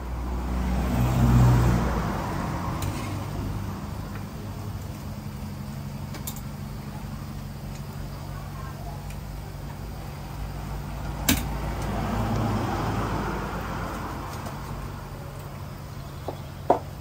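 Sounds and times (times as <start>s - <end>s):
passing vehicle: 0.0s - 17.0s.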